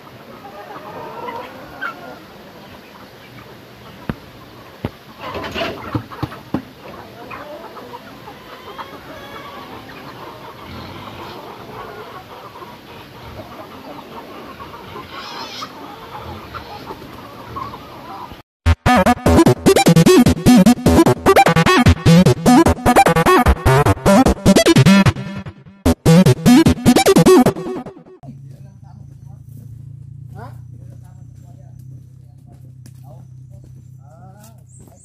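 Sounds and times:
chickens clucking: 0:00.0 - 0:35.0
loud chicken calls: 0:00.2 - 0:18.4
electronic intro music: 0:18.7 - 0:28.2.

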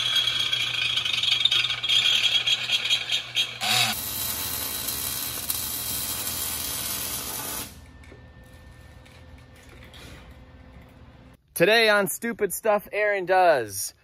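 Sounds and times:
welding arc crackling hiss: 0:03.6 - 0:07.8.

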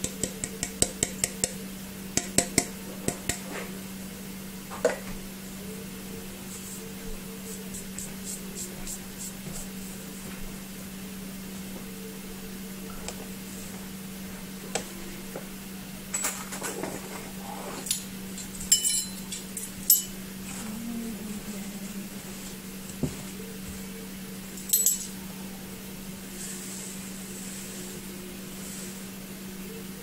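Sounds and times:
steady low hum: 0:00.0 - 0:30.0
dishes and utensils clinking: 0:16.1 - 0:17.2, 0:17.8 - 0:20.2, 0:24.6 - 0:25.2.

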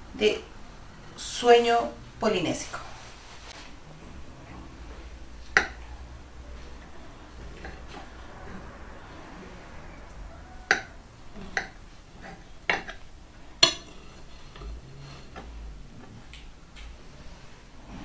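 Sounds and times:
knife and fork clinking on plates: 0:13.6 - 0:14.7.

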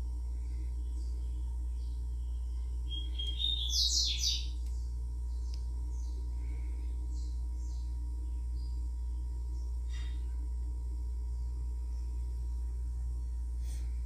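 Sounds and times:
steady low hum: 0:00.0 - 0:14.0
bird chirping: 0:00.8 - 0:06.3, 0:07.0 - 0:09.8.

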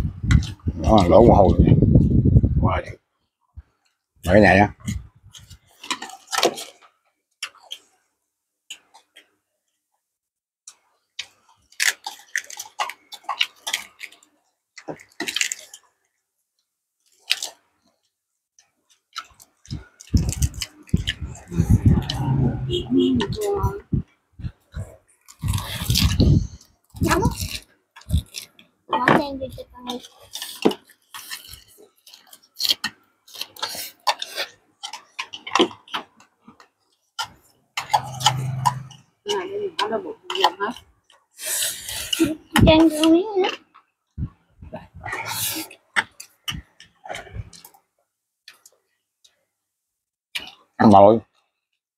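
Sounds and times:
people slurping and chewing: 0:00.1 - 0:01.4, 0:04.8 - 0:06.8, 0:11.2 - 0:14.2, 0:18.9 - 0:23.8, 0:24.4 - 0:28.6, 0:29.9 - 0:43.6, 0:44.2 - 0:47.8, 0:50.4 - 0:50.6
slurping from a bowl: 0:20.9 - 0:23.0, 0:37.8 - 0:39.0, 0:45.0 - 0:45.8
wet smacking chewing: 0:30.2 - 0:39.0.

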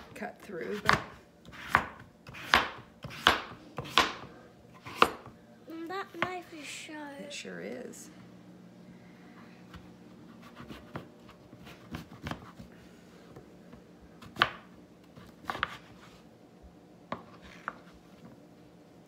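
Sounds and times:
knife slicing squash: 0:00.6 - 0:05.3, 0:15.2 - 0:16.0.

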